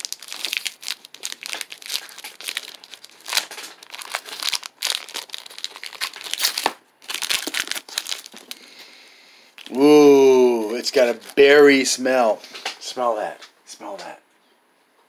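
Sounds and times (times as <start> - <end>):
plastic wrapper crinkling: 0.0 - 8.8, 9.5 - 9.9, 10.6 - 12.0.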